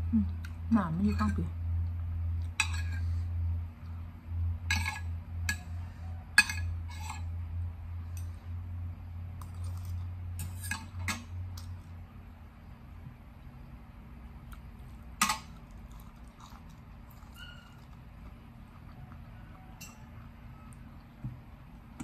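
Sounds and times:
steady low hum: 0.0s - 22.0s
cutlery clinking on a plate: 6.4s - 7.2s.

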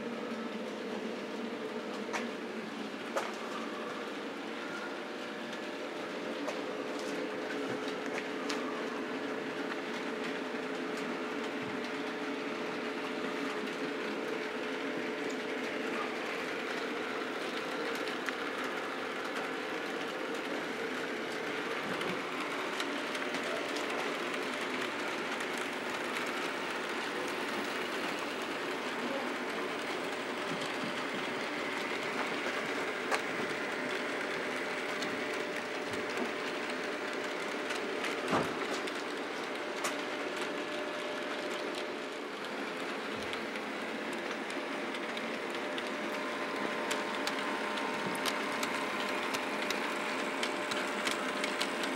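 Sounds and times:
model train motors whirring: 2.3s - 51.9s.

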